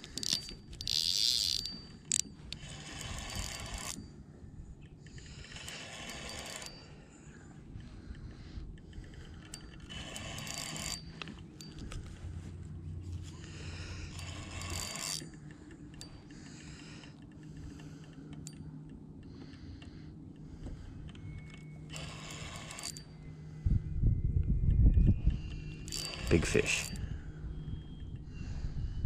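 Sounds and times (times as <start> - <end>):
fishing reel ratcheting: 0.0 - 4.1, 5.0 - 7.0, 8.8 - 12.2, 13.3 - 18.6, 21.9 - 23.2, 25.2 - 27.1.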